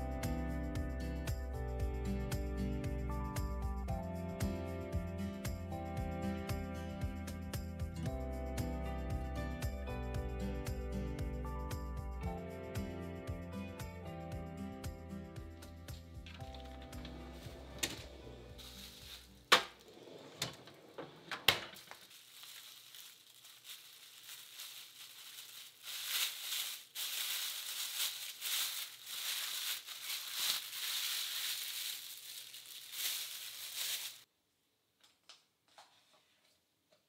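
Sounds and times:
plastic cling wrap crinkling: 18.6 - 19.9, 21.5 - 34.3.

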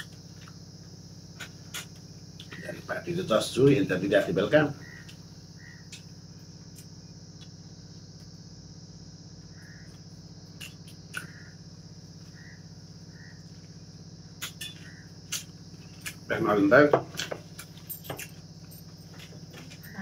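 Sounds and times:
steady low hum: 0.0 - 20.0
faint chirps: 4.2 - 16.4.

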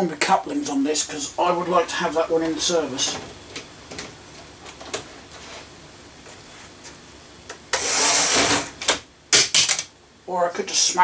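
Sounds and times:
loud rubbing scrape: 7.7 - 8.8.

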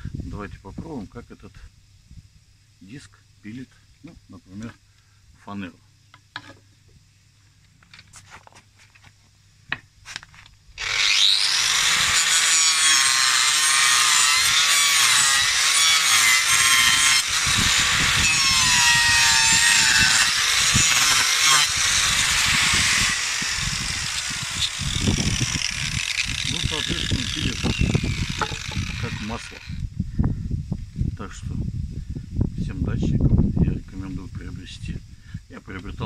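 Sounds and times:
angle grinder cutting plywood: 10.8 - 29.8.

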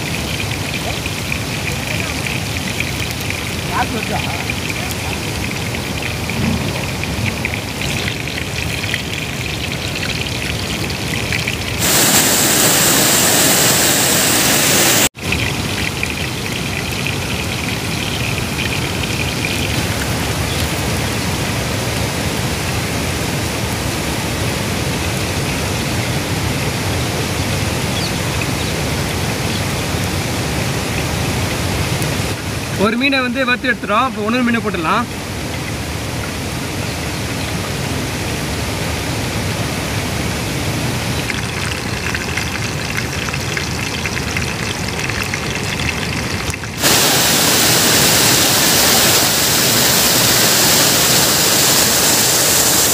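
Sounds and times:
fish sizzling in hot oil: 0.0 - 21.2, 41.2 - 52.9.

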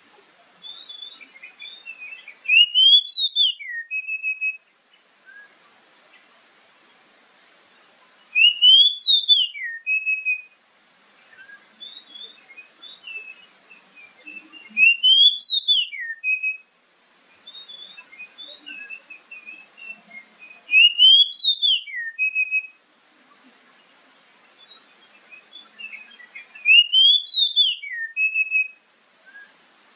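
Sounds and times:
bird whistling song phrase: 0.6 - 4.6, 5.2 - 5.6, 8.3 - 10.6, 11.3 - 16.7, 17.4 - 22.8, 24.6 - 29.6
soft bird twittering: 0.6 - 6.3, 7.7 - 10.6, 11.2 - 16.6, 17.3 - 29.6.

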